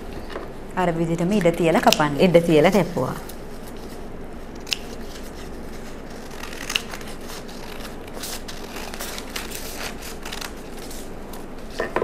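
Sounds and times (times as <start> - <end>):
scissors snipping paper: 4.6 - 11.1.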